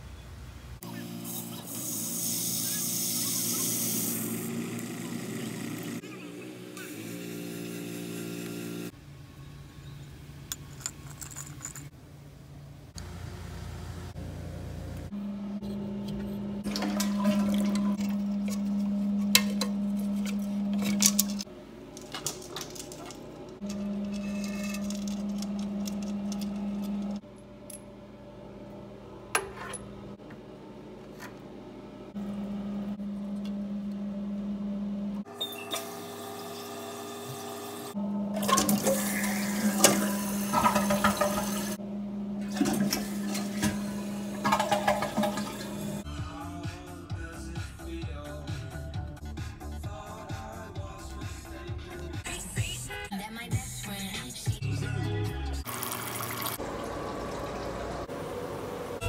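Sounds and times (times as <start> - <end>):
water running into toilet tank: 16.6 - 18.2, 38.4 - 41.8, 42.4 - 46.0, 55.7 - 58.2.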